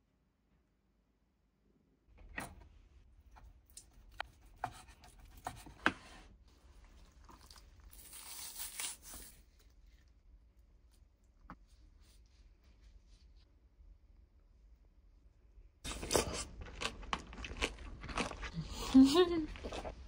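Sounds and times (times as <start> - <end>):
kimchi torn apart by hand: 7.1 - 10.2.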